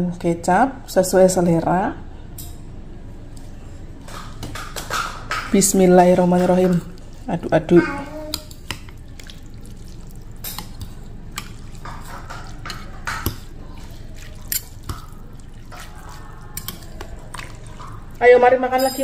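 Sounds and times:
soup sloshing in a bowl: 3.4s - 18.2s
metal clinking against bowl: 18.7s - 19.0s.

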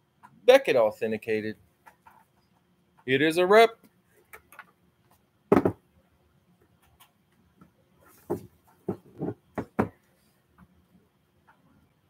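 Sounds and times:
plastic helmet knocks and bumps: 5.5s - 5.9s, 8.2s - 10.0s.

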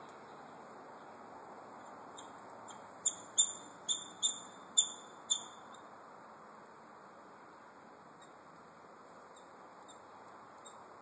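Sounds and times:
high-pitched animal chirps: 3.0s - 5.6s.

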